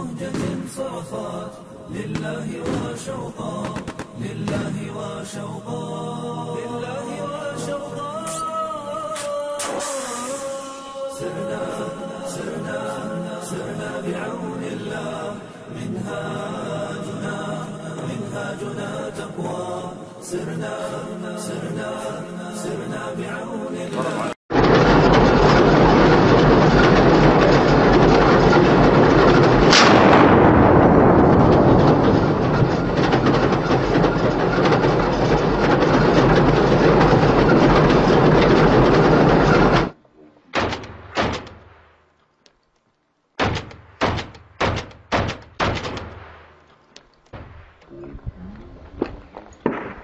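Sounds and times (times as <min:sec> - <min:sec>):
loud dense continuous noise: 0:00.0 - 0:41.3
rifle shots with echoes: 0:29.7 - 0:31.1, 0:43.4 - 0:46.6, 0:49.6 - 0:50.0.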